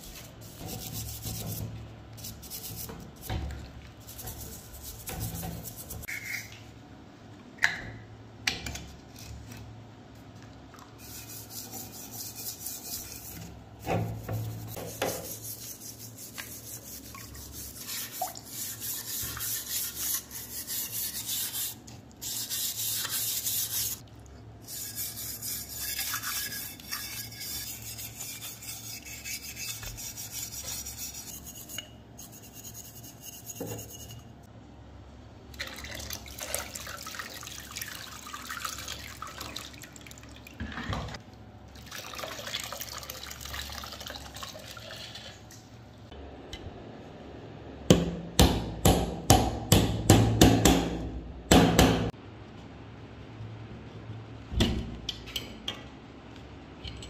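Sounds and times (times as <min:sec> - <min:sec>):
stiff brush scrubbing metal: 0:24.6 - 0:34.2
water pouring: 0:41.8 - 0:45.4.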